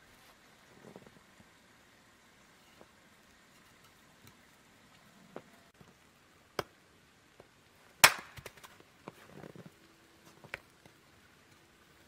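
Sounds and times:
hatchet chopping firewood: 8.0s - 8.8s.

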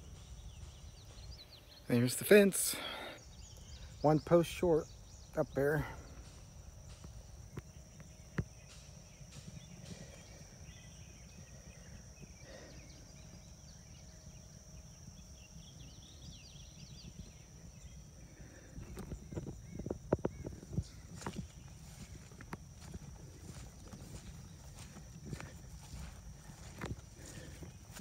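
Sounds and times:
faint chirps: 0.0s - 28.0s
wind rumble on microphone: 15.2s - 28.0s.

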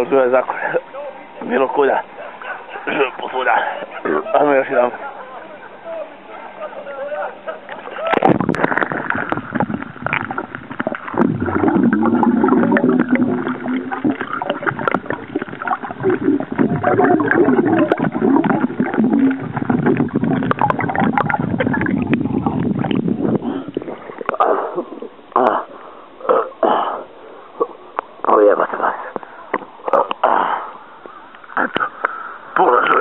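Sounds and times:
underwater bubbling and gurgling: 7.7s - 28.2s.

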